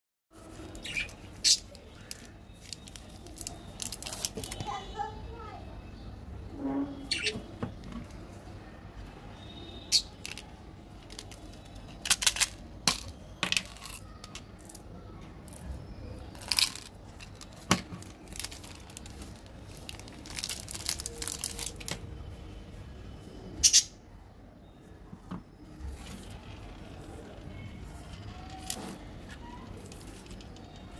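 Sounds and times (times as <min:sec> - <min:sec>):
plastic wrappers crinkling: 0:00.4 - 0:04.8, 0:10.2 - 0:14.8, 0:16.3 - 0:22.2, 0:28.3 - 0:30.9.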